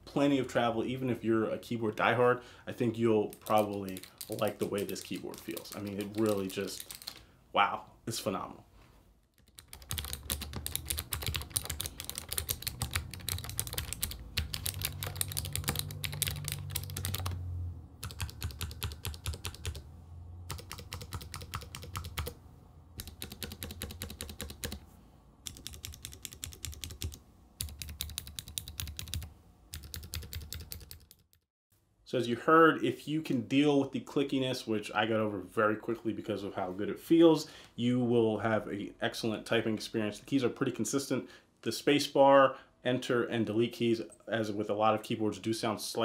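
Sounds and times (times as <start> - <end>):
fast typing on mechanical keyboard: 3.3 - 7.2, 9.4 - 17.4, 18.0 - 19.8, 20.5 - 22.4, 23.0 - 24.8, 25.4 - 31.3.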